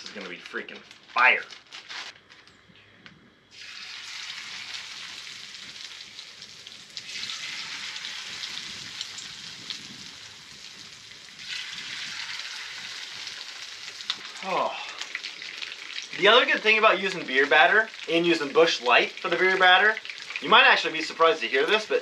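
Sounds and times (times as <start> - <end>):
fish fillets sizzling in frying pan: 3.5 - 14.4, 15.0 - 20.4.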